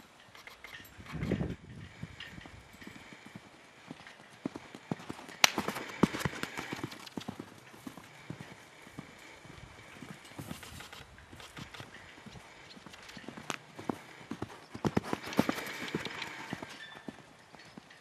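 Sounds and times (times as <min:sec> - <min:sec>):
horse hoofbeats cantering on sand: 0:01.2 - 0:18.0
sharp crack: 0:05.4 - 0:06.6.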